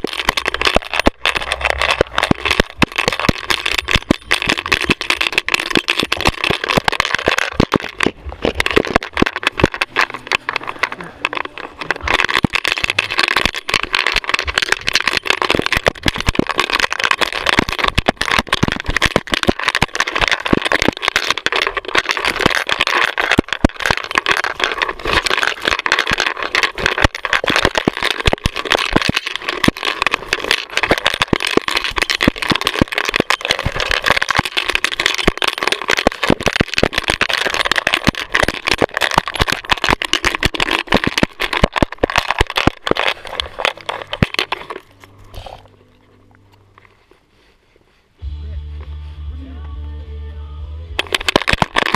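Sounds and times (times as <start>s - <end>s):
camera rattling and knocking: 0.0s - 45.7s, 51.0s - 51.9s.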